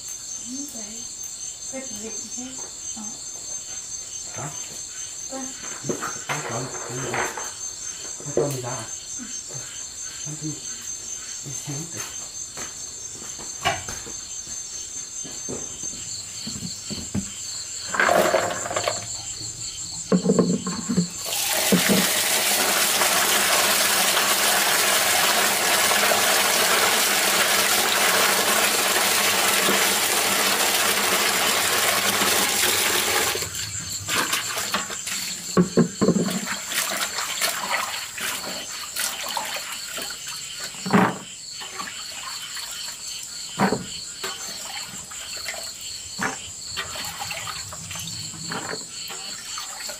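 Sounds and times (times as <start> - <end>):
insects trilling: 0.0 - 49.9
knocks: 20.1 - 22.1
running water rushing: 21.2 - 35.3.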